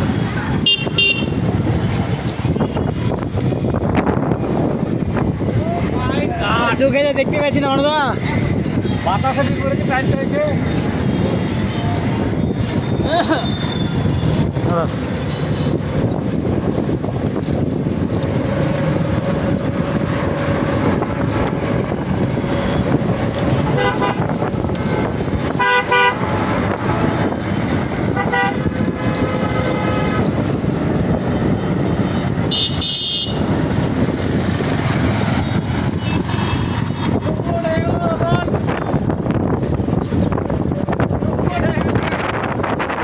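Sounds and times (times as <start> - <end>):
wind rushing over microphone: 0.0 - 43.0
vehicle horns tooting: 0.6 - 1.5, 23.6 - 24.6, 25.4 - 26.3, 28.1 - 28.8, 32.4 - 33.6, 35.9 - 36.8.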